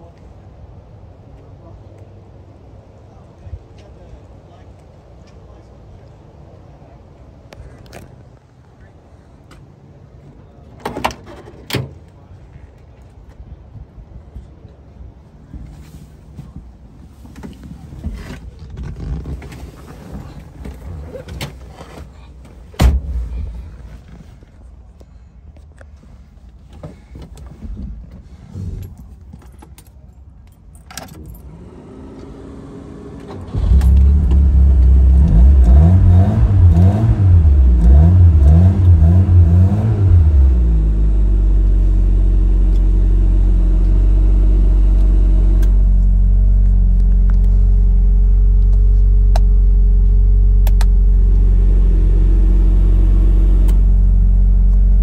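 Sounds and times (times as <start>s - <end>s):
keys jangling at ignition: 28.8s - 31.5s
car engine starting and revving: 31.4s - 55.0s.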